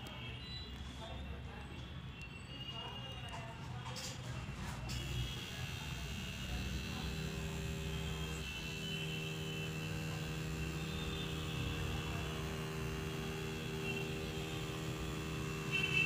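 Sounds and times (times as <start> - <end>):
tattoo machine buzzing: 5.0 - 16.0.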